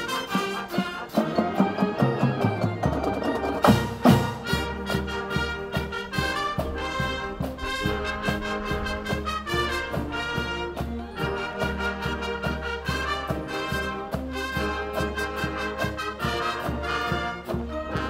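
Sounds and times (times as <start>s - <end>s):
marching band playing: 0.0s - 18.0s
accented drum hits: 2.4s - 10.9s.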